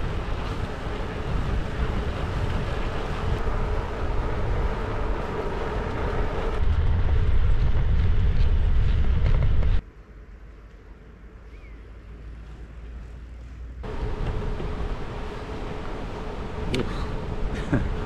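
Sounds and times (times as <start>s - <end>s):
wind rumble on microphone: 0.0s - 9.8s
bike tyres rolling on tarmac: 0.0s - 11.4s, 12.0s - 18.0s
outdoor background: 0.0s - 18.0s.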